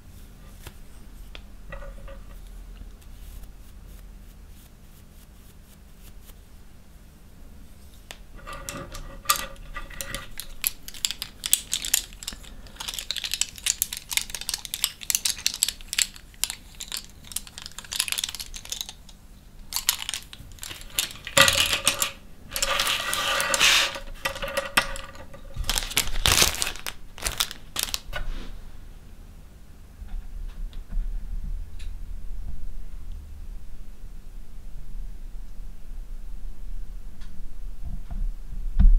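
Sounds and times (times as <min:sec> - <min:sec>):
brushes rolling on a tabletop: 0:01.7 - 0:02.5, 0:08.4 - 0:19.0, 0:19.8 - 0:28.0
paintbrushes clicking and rattling: 0:08.4 - 0:28.1.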